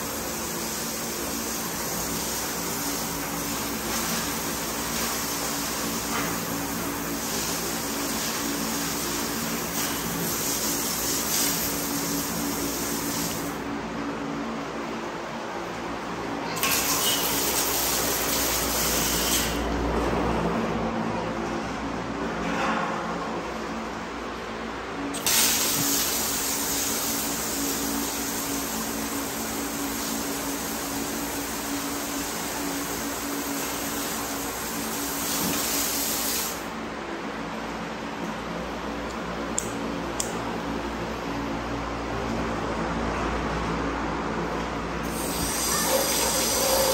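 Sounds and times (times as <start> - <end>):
water spray hissing: 45.1 - 46.9.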